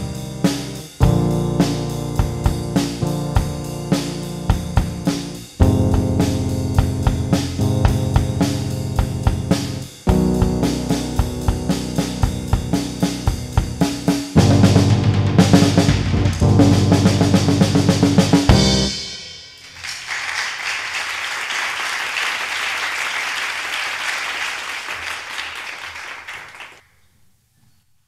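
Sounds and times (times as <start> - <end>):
drum kit played hard: 0.0 - 19.8
audience applause: 19.6 - 26.8.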